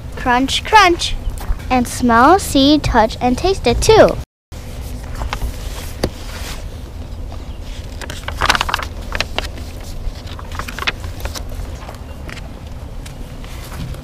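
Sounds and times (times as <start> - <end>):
book pages turning: 4.8 - 12.4.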